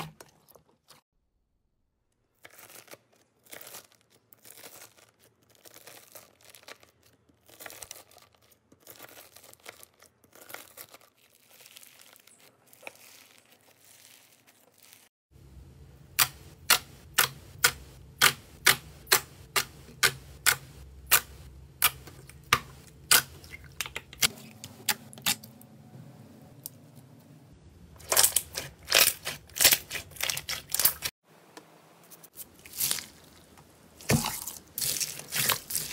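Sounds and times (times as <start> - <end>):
slime crackling under knife: 28.0 - 31.1.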